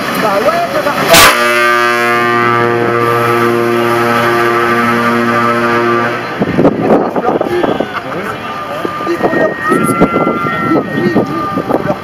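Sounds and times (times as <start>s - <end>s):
truck air horn blast: 1.1s - 6.6s.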